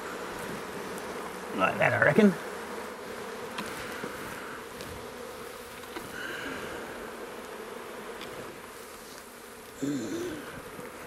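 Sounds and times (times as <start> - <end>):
bees buzzing: 0.0 - 11.0.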